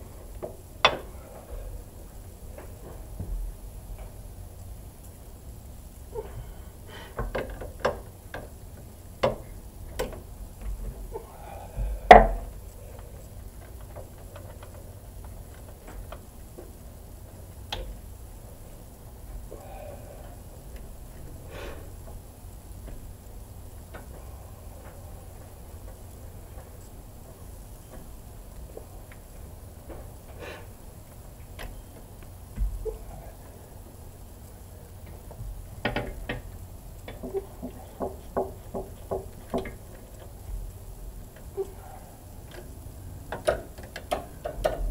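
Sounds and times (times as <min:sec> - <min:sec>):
tools clicking and tapping: 0:43.3 - 0:44.9.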